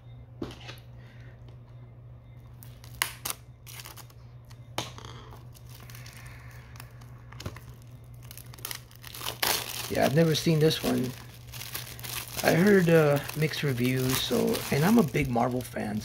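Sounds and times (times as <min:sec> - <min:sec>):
plastic wrap crinkling: 0:05.4 - 0:16.0.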